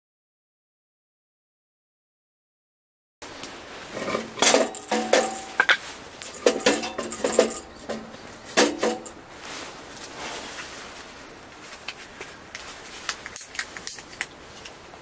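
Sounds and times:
dishes and utensils clinking: 3.9s - 9.2s.

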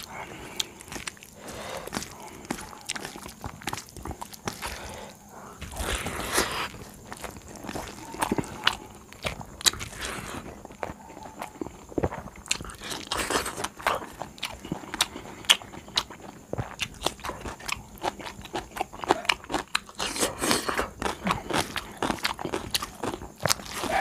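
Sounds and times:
chewing food: 0.0s - 24.0s.

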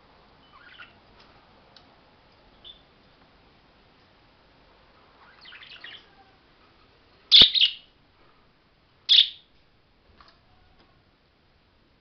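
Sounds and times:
budgerigars chirping: 0.4s - 1.0s, 5.2s - 6.1s, 7.3s - 7.9s, 9.1s - 9.4s.

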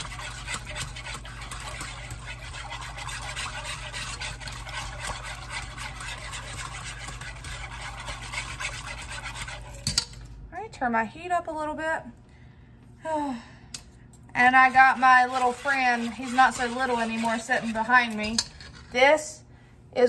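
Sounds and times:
whisk scraping and sloshing sauce: 0.0s - 9.9s, 14.4s - 19.1s.

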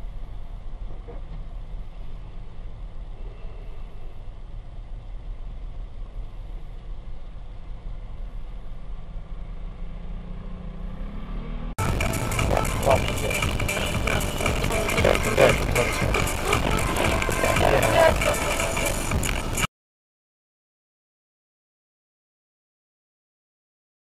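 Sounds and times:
engine note rising: 10.1s - 19.7s
car engine idling: 11.8s - 19.7s.

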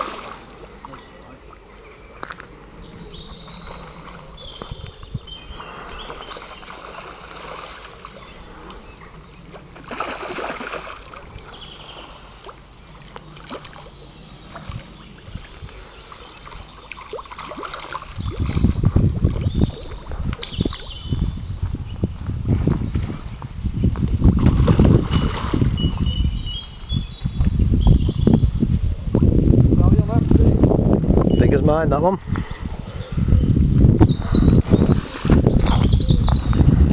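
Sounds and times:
small birds chirping: 0.9s - 9.8s, 10.6s - 22.9s, 25.7s - 28.6s, 31.3s - 36.9s
wind buffeting microphone: 1.8s - 10.3s, 14.0s - 16.8s, 17.9s - 36.9s
fish splashing in water: 5.6s - 21.0s, 24.3s - 26.0s.

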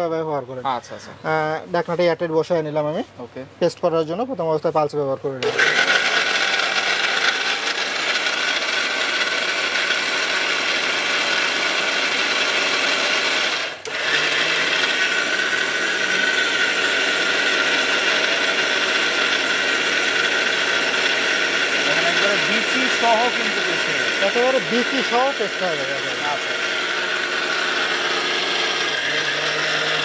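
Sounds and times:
mixer grinder motor whining: 5.4s - 30.0s
blades grinding chillies in jar: 18.8s - 30.0s.

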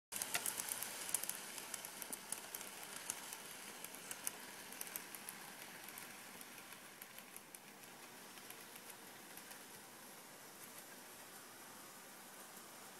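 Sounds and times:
wheels clicking over rail joints: 0.1s - 9.9s
model train running on track: 0.2s - 12.9s.

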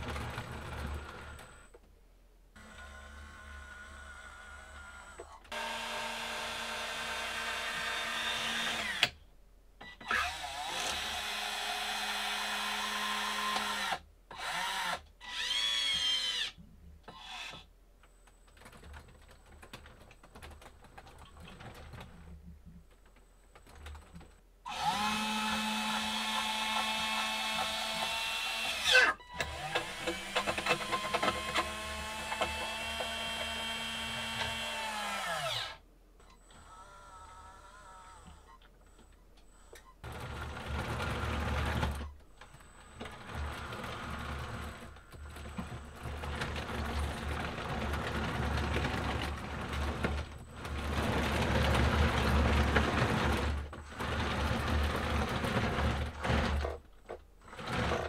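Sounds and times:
gear motors whining: 24.7s - 56.8s.

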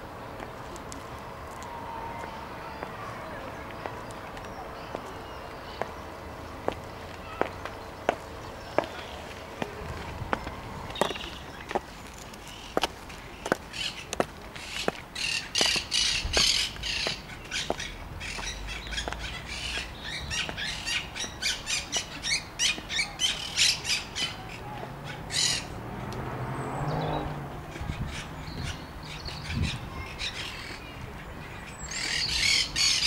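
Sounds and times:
high-heeled footsteps on paving: 3.6s - 6.0s, 6.6s - 23.0s
birds squawking harshly: 12.4s - 25.8s, 27.6s - 33.0s.

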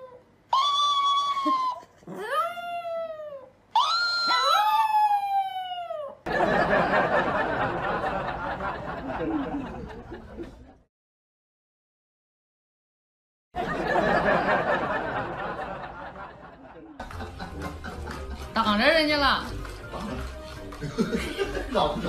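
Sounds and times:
small dog howling: 0.0s - 6.2s.

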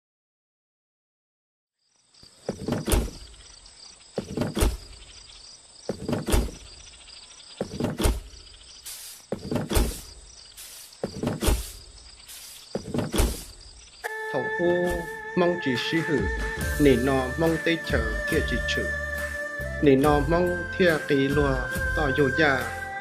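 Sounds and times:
deep thuds: 2.4s - 8.6s, 9.2s - 13.8s
short hissing bursts: 8.1s - 13.9s.

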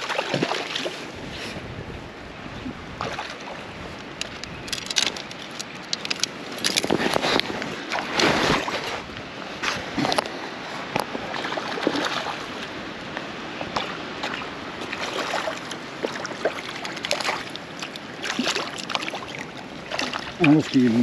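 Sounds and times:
water splashing and running: 0.0s - 1.1s, 3.0s - 9.0s, 11.0s - 12.8s, 13.6s - 21.0s.

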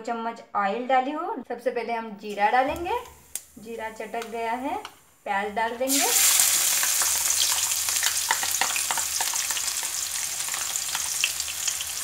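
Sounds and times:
onions sizzling in hot oil: 2.7s - 5.1s, 5.7s - 12.0s.

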